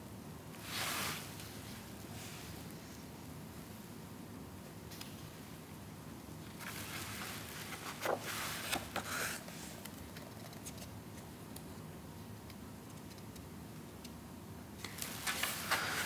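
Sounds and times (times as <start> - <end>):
paper page turning: 6.5 - 9.8, 14.8 - 16.0.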